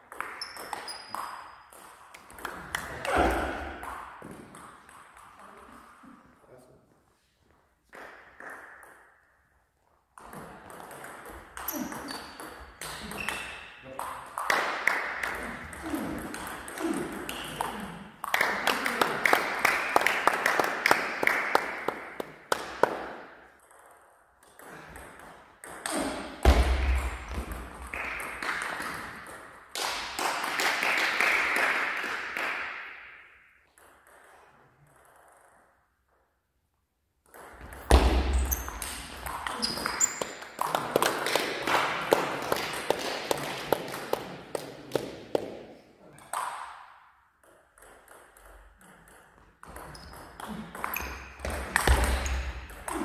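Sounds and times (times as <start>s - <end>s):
ping pong ball hitting bats: 0.1s - 5.8s, 10.2s - 20.8s, 21.4s - 30.5s, 33.7s - 35.7s, 37.2s - 45.7s, 46.3s - 53.0s
ball bouncing on table: 37.3s - 40.3s, 47.4s - 52.8s.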